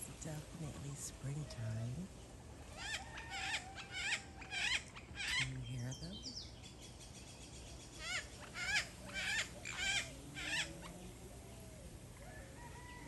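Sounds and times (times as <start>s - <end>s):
parrot squawks: 2.8s - 5.5s, 8.0s - 10.7s.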